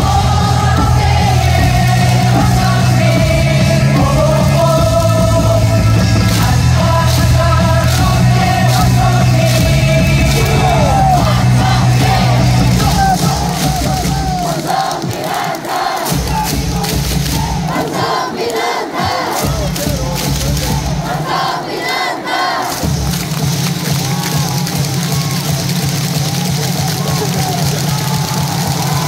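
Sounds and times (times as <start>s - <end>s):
steady bass beat: 0.0s - 15.2s, 16.1s - 18.0s, 19.0s - 21.3s
crowd singing cheer song: 0.0s - 25.4s
fans shouting: 0.0s - 29.0s
music over loudspeakers: 0.0s - 29.0s.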